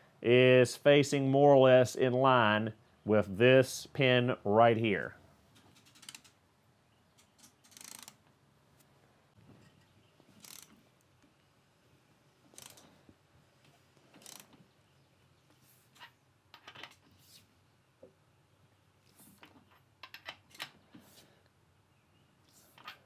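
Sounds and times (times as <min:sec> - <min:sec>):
ratchet wrench clicking: 0:05.8 - 0:06.3, 0:07.6 - 0:08.2, 0:10.4 - 0:10.7, 0:12.5 - 0:12.8, 0:14.2 - 0:14.5.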